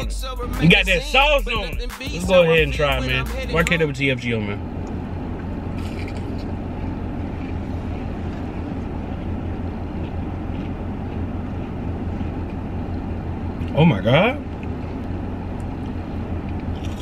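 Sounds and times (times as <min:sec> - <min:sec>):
car engine idling: 0:00.0 - 0:17.0
crisp crunch of a bite: 0:05.7 - 0:09.3, 0:09.9 - 0:12.6, 0:16.6 - 0:17.0.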